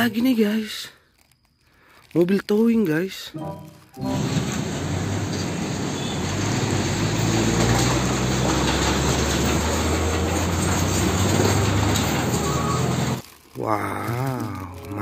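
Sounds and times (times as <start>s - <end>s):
road and tyre noise: 4.0s - 13.4s
truck diesel engine humming: 4.1s - 13.2s.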